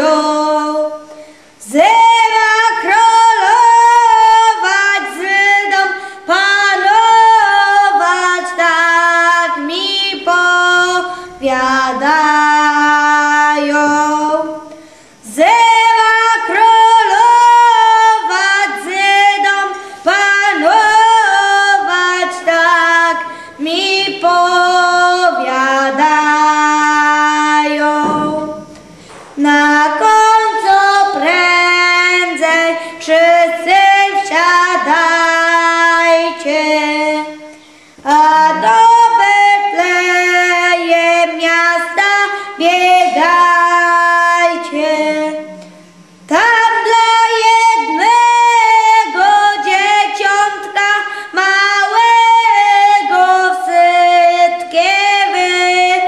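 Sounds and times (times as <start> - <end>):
boy singing unaccompanied: 0.0 - 56.0.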